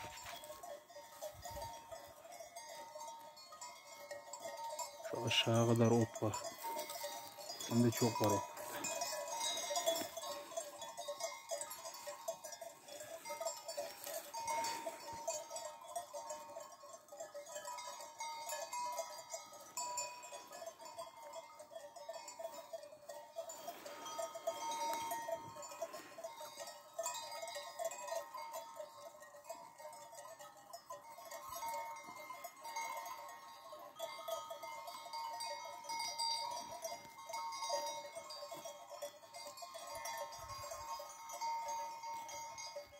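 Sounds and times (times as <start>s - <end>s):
sheep bells jangling: 0.0s - 42.9s.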